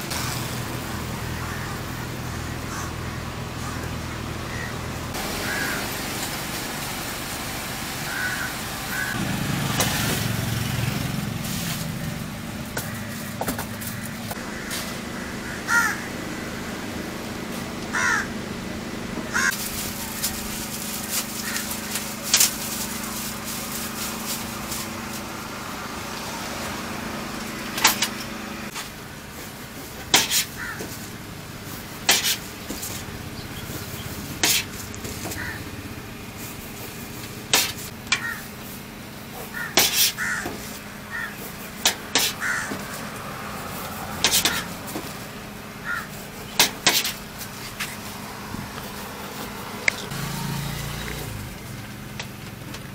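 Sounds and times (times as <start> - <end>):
steady hum: 0.0 - 52.9
crows cawing: 1.2 - 5.9, 8.0 - 9.2, 12.8 - 16.9, 17.9 - 18.4, 19.3 - 23.8, 30.2 - 31.0, 35.2 - 35.8, 38.1 - 38.6, 39.4 - 43.2, 45.8 - 46.2.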